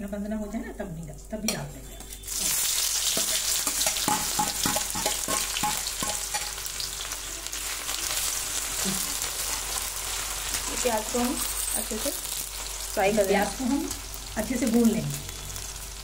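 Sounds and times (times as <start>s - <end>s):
onions frying in hot oil: 2.0s - 16.0s
metal spatula scraping a pan: 2.2s - 6.9s, 11.1s - 12.8s.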